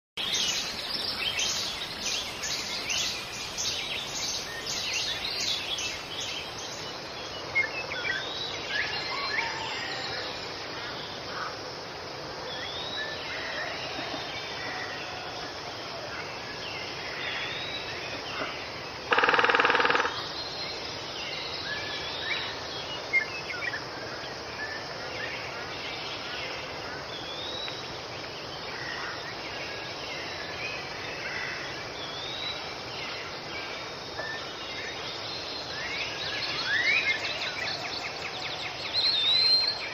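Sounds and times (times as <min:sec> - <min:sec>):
birds chirping and calling: 0:00.2 - 0:10.1, 0:36.0 - 0:39.9.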